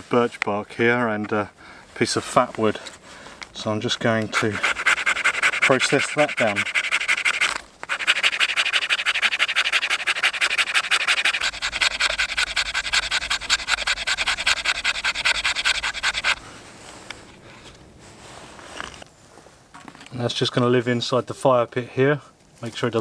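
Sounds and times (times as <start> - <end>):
knife scraping wood: 4.2 - 16.4.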